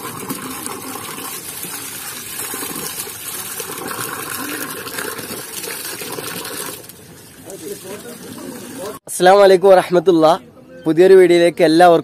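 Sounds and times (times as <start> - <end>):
water gushing and splashing: 0.0 - 9.0.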